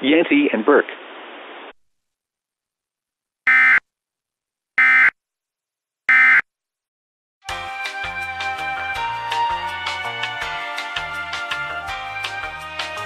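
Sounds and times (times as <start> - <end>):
short digital buzzes: 3.5 - 3.8.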